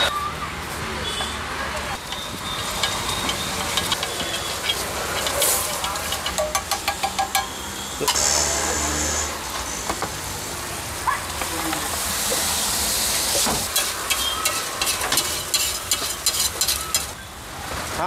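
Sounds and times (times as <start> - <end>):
gravy sizzling on griddle: 1.9 - 18.0
metal spatula scraping griddle: 2.0 - 9.8, 13.3 - 17.2.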